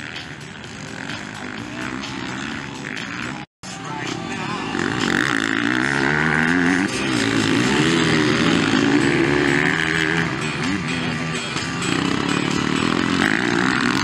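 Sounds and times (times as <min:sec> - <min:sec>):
motocross bike engines revving: 0:00.0 - 0:14.0.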